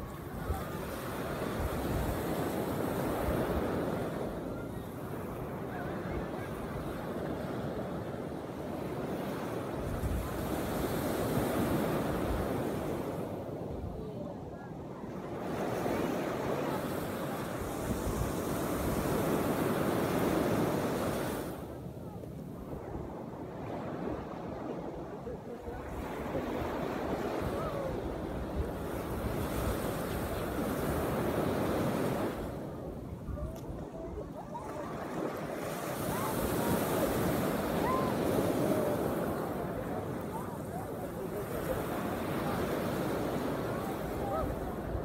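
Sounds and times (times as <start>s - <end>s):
small waves breaking on sand: 0.0s - 45.0s
wind rumble on microphone: 0.0s - 45.0s.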